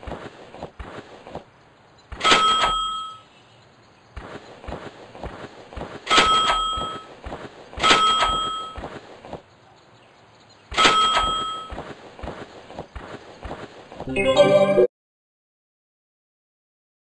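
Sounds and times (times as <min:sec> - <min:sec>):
strikes with high ringing tone: 0:02.2 - 0:03.3, 0:06.1 - 0:07.1, 0:07.8 - 0:08.8, 0:10.8 - 0:11.8.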